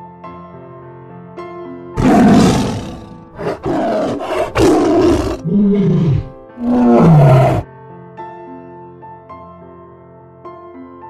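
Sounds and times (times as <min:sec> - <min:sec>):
tiger roaring and growling: 0:02.0 - 0:07.6.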